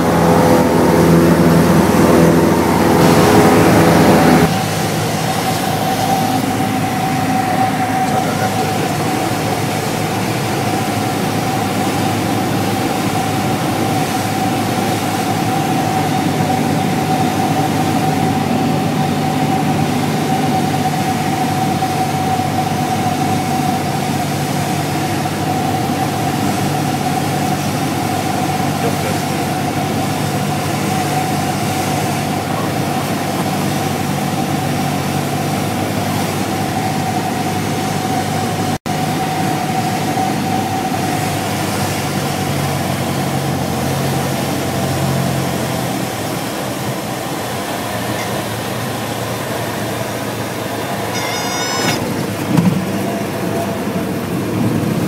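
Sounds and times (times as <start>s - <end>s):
strong steady tone: 0.0s - 32.6s, 48.0s - 53.8s
propeller plane engine droning: 0.0s - 55.0s.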